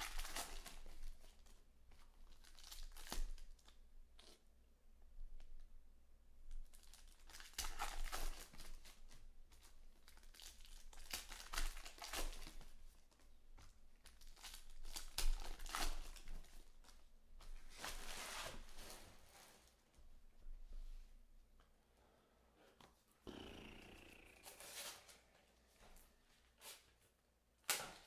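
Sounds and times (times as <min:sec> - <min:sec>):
wrappers tearing and crinkling: 0:00.0 - 0:01.6, 0:02.2 - 0:04.4, 0:06.7 - 0:13.0, 0:14.0 - 0:17.0.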